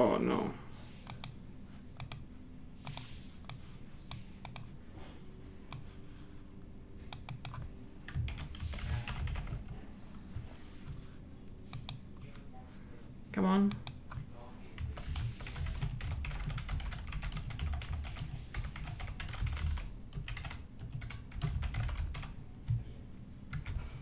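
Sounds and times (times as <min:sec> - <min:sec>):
keyboard typing: 0:01.1 - 0:01.4, 0:02.0 - 0:02.2, 0:02.8 - 0:04.7, 0:07.1 - 0:09.8, 0:11.7 - 0:12.0, 0:14.8 - 0:22.8, 0:23.5 - 0:23.8.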